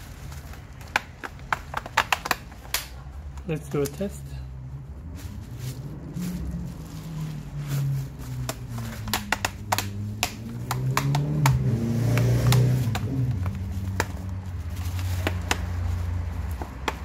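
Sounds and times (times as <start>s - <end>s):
plastic clicks and taps: 9.0s - 11.6s.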